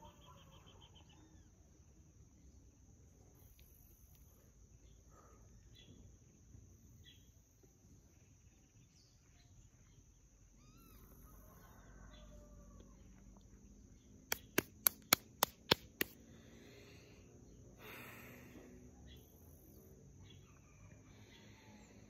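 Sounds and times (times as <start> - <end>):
bird chirps: 0.0 - 1.6
insects droning: 0.0 - 22.0
hand claps: 14.3 - 16.2.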